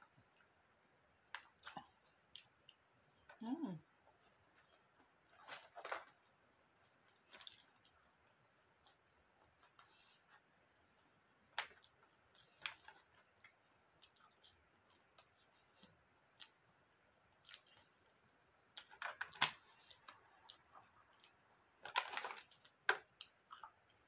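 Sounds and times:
person eating chicken: 17.4 - 17.9.

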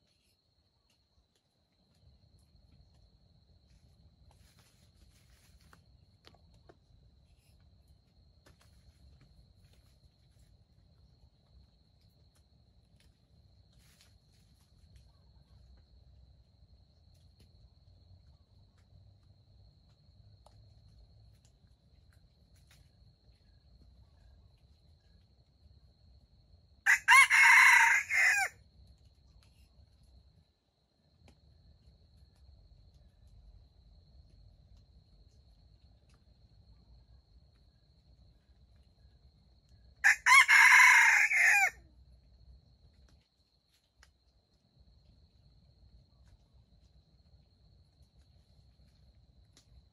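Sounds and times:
rooster crowing: 26.9 - 28.6, 40.0 - 41.8.

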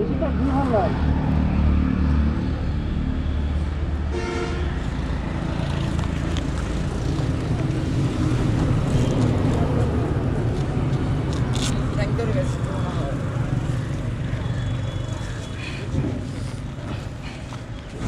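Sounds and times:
road traffic rumble: 0.0 - 18.0
vehicle horn: 4.1 - 4.8.

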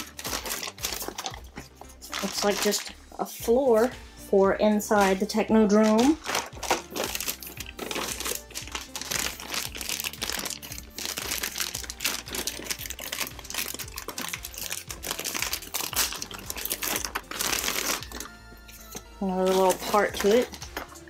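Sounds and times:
plastic bags crinkling: 0.0 - 3.0, 5.0 - 21.0
faint background music: 0.0 - 21.0.

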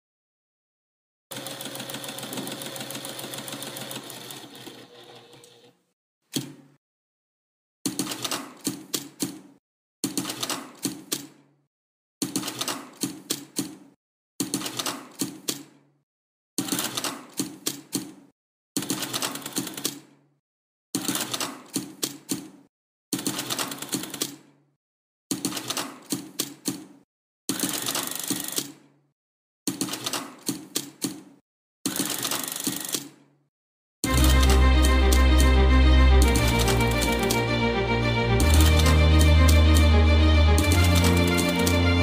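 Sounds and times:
sewing machine stitching: 1.3 - 5.8, 27.5 - 28.8, 31.9 - 33.2.

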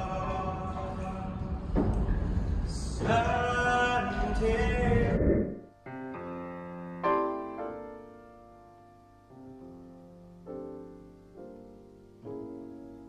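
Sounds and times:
slow quiet piano music: 5.8 - 13.0.

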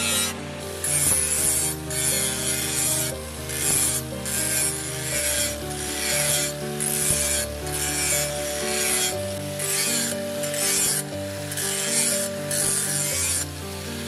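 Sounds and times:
angle grinder grinding steel: 0.0 - 14.0.

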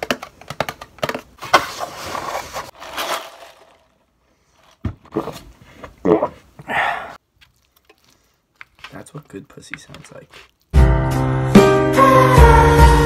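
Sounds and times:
foil bowl crinkling: 1.0 - 4.0, 7.3 - 10.8.

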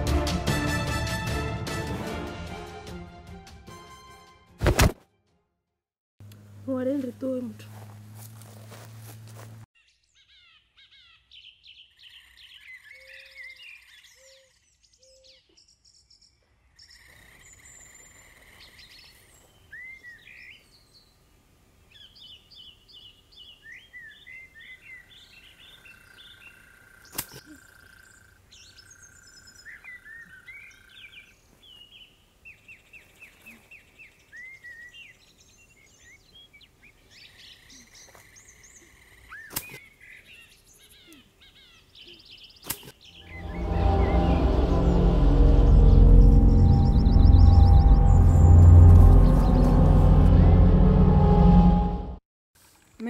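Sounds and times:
birds chirping and trilling: 6.8 - 51.9
sharp click: 42.6 - 43.0.

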